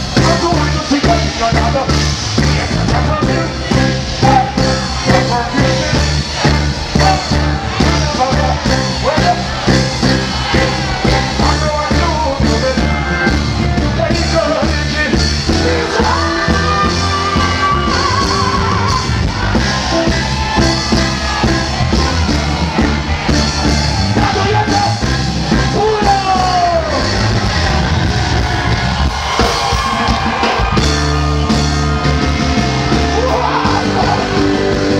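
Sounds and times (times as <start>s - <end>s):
live reggae band: 0.0s - 34.9s
man singing into microphone: 0.2s - 9.5s, 11.3s - 19.1s.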